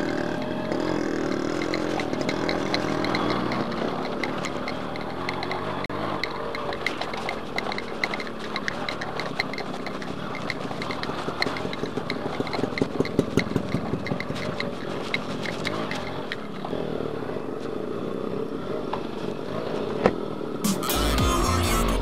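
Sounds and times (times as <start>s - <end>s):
light engine ticking: 0.0s - 16.8s
motorcycle engine running: 0.0s - 22.0s.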